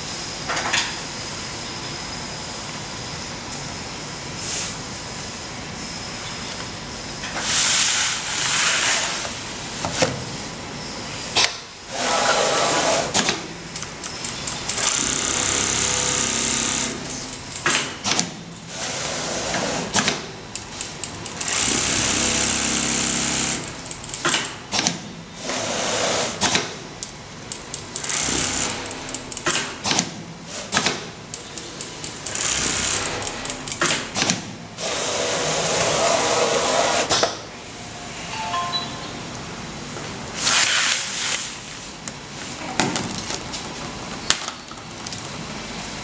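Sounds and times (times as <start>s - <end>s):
sewing machine needle chatter: 20.6s - 24.4s, 27.5s - 29.5s, 31.8s - 33.9s.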